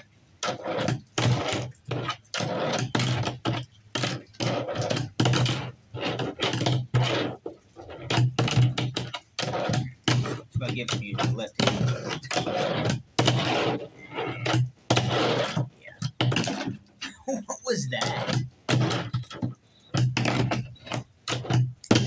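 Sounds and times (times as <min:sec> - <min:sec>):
man talking: 0:10.6 - 0:12.2, 0:17.0 - 0:18.4.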